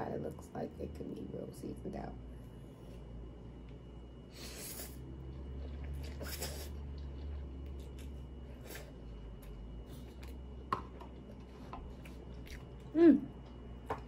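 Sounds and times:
person chewing noodles: 0:04.3 - 0:14.0
person humming: 0:12.9 - 0:13.4.

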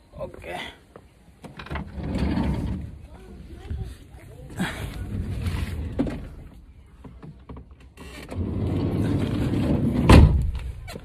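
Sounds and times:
sliding door rolling: 0:01.6 - 0:03.0, 0:08.0 - 0:10.5.

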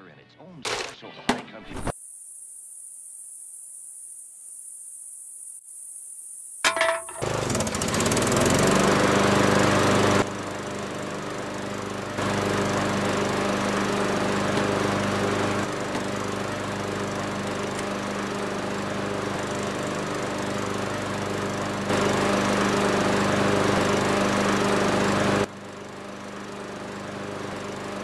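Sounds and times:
lawn tractor engine running: 0:06.7 - 0:28.0.

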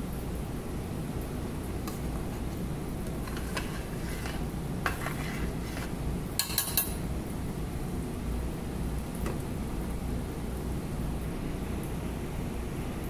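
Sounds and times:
steady low hum: 0:00.0 - 0:13.0
metal spoon stirring stew in pot: 0:01.9 - 0:07.0
spoon clanking against pot: 0:05.8 - 0:07.0.

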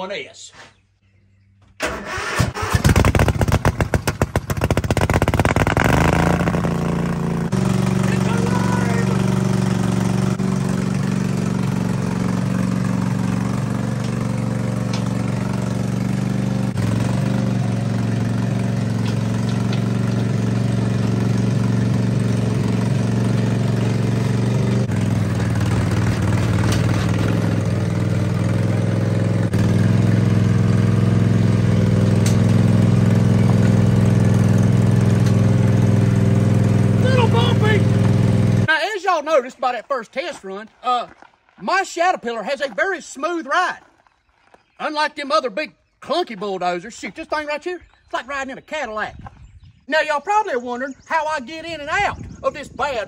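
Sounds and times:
lawnmower engine running: 0:01.8 - 0:38.8.

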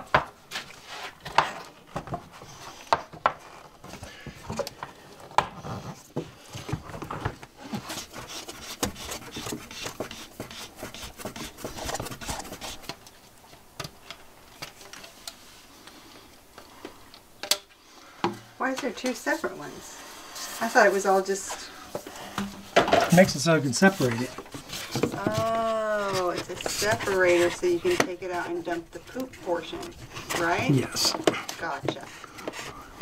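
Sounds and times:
plastic hose rubbing and scraping: 0:00.0 - 0:13.2, 0:20.4 - 0:33.0.

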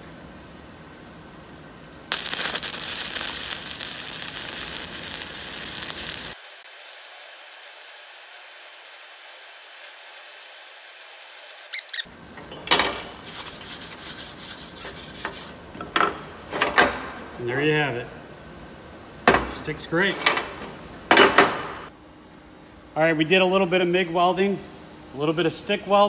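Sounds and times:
welding arc crackling: 0:02.1 - 0:12.1.

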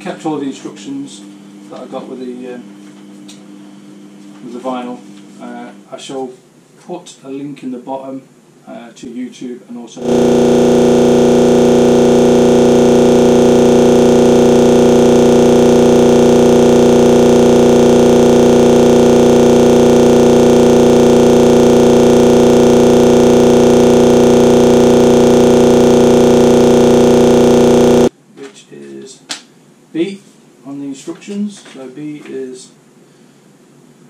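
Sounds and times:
synthesized drone: 0:10.0 - 0:28.1.

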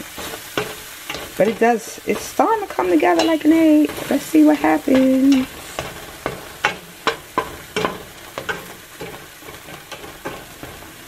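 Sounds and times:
egg sizzling in a frying pan: 0:00.0 - 0:11.0
spoon scraping and tapping a pan: 0:00.0 - 0:11.0.

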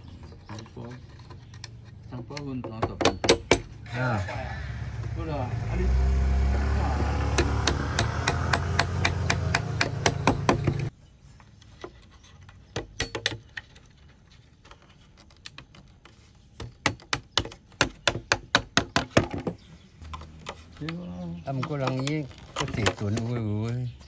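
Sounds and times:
low engine hum: 0:04.2 - 0:10.9.

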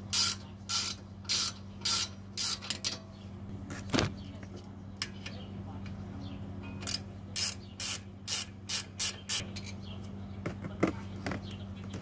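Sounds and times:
ratcheting wrench clicking: 0:00.1 - 0:03.0.

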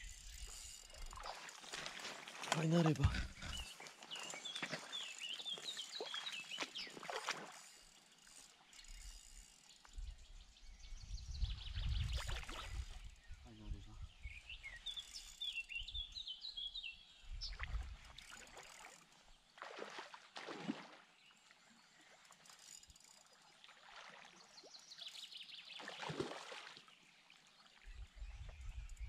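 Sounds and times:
bird chirping: 0:02.6 - 0:07.0.

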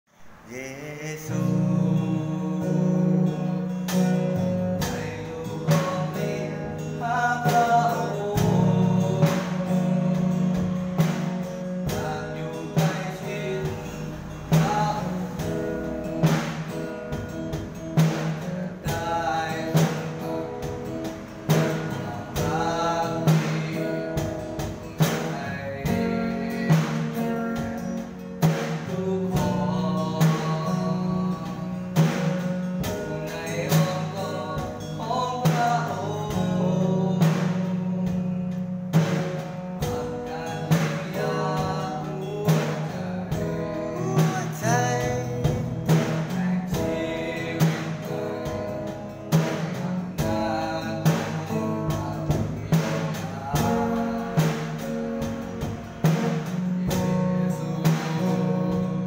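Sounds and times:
person singing: 0:00.2 - 0:59.0
plucked guitar: 0:00.3 - 0:59.0.

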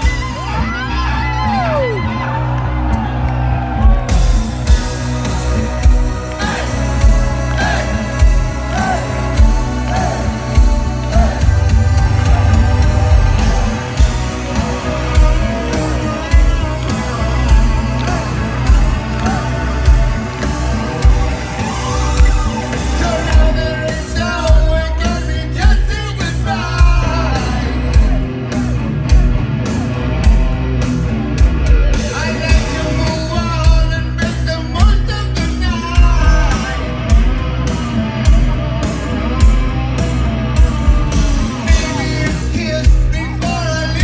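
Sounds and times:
heavy metal band playing live: 0:00.0 - 0:44.0
heavy drum beat: 0:03.8 - 0:44.0
man singing: 0:06.4 - 0:19.9, 0:22.8 - 0:28.2, 0:32.0 - 0:38.6, 0:39.2 - 0:44.0.

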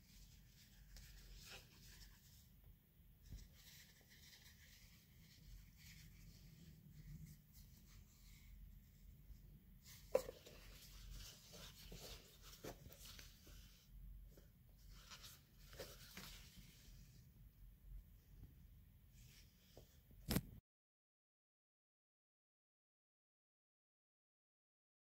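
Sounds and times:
silk scarf and packaging rustling: 0:00.0 - 0:02.5, 0:03.2 - 0:09.0, 0:09.8 - 0:17.1.

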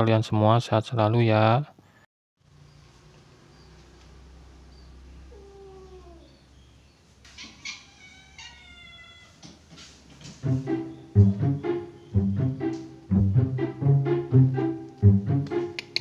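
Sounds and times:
cats meowing: 0:05.2 - 0:06.6, 0:07.3 - 0:09.7
bowed-string music: 0:10.4 - 0:15.9.

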